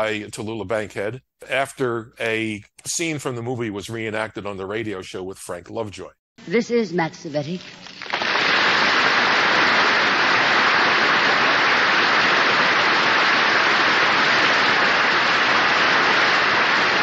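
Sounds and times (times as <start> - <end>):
studio audience applauding: 8.0 - 17.0.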